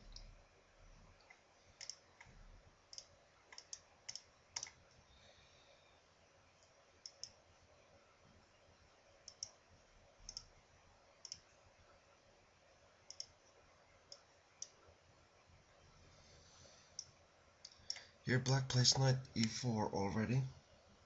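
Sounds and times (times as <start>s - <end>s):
computer mouse clicks: 0.0s - 0.4s, 1.2s - 5.0s, 6.6s - 7.4s, 9.2s - 9.6s, 10.2s - 10.5s, 11.2s - 11.5s, 13.1s - 14.8s.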